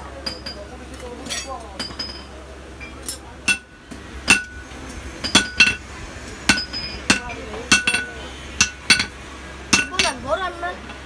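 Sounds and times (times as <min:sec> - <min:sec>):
hammer striking steel on anvil: 0:00.2 - 0:05.8, 0:06.4 - 0:10.2.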